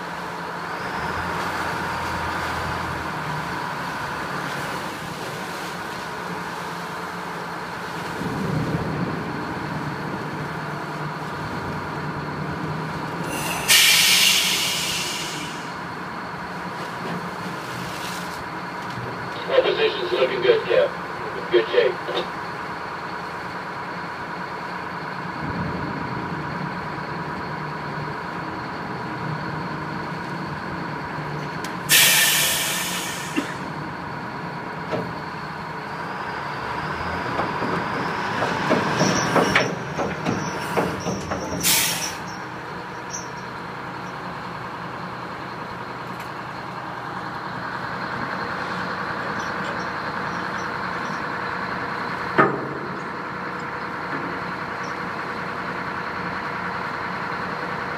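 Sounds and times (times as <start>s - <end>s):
boat engines humming: 0.0s - 57.9s
loud hiss: 13.3s - 15.8s, 31.9s - 33.6s, 41.6s - 42.4s
metal clanks and knocks: 37.4s - 41.6s, 52.3s - 53.2s.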